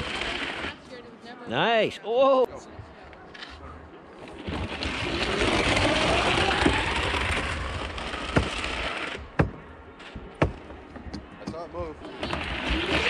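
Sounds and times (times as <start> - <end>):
skis hissing down track: 0.0 - 1.0
sharp knocks: 9.4 - 11.7.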